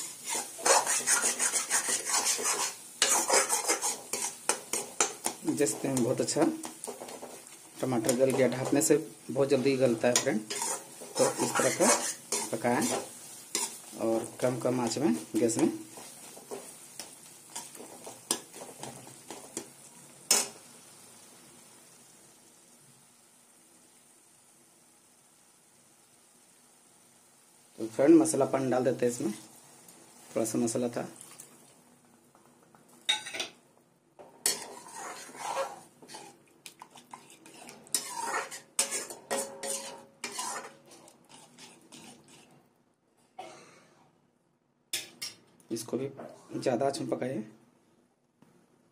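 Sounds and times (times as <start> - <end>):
ladle stirring and scraping pan: 0.0 - 20.7, 32.4 - 33.6, 34.2 - 42.7
faint sizzle: 0.0 - 43.0.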